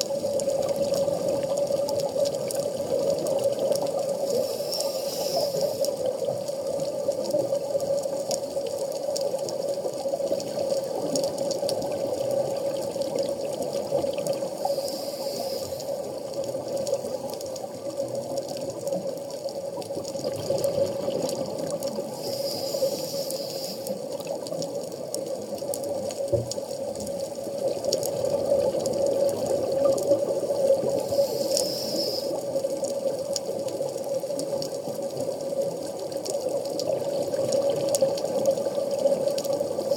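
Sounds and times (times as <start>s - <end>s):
muffled underwater noise: 0.0s - 39.9s
brief hiss: 4.3s - 5.9s, 22.2s - 24.0s, 31.1s - 32.4s.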